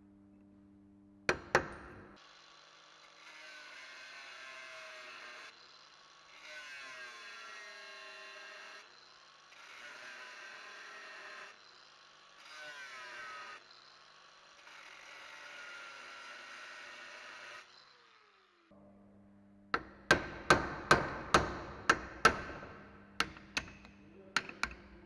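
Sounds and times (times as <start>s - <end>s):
angle grinder cutting steel: 2.2s - 18.7s.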